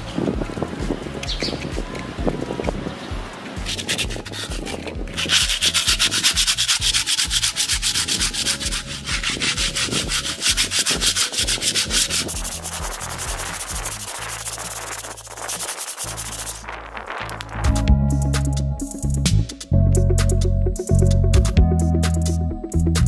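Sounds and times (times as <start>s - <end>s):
sandpaper scraping rough surface: 3.5s - 17.9s.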